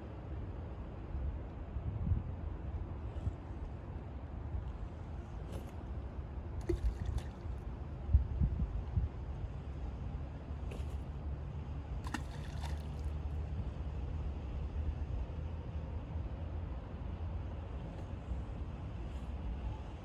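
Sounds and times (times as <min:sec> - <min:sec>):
steady low rumble: 0:00.0 - 0:20.0
water lapping and sloshing: 0:05.2 - 0:08.0, 0:10.6 - 0:13.4
small plops into water: 0:06.6 - 0:07.6, 0:12.0 - 0:13.2.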